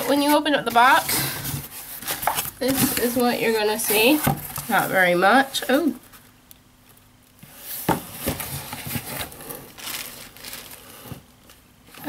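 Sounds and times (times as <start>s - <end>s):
paper packaging rustling: 0.0s - 12.0s
sharp paper crackles: 8.5s - 11.6s.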